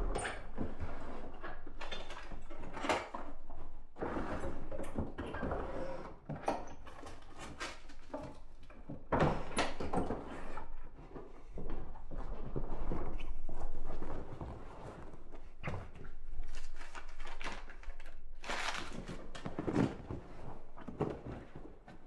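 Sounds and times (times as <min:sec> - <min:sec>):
hands rummaging: 0:13.6 - 0:22.0.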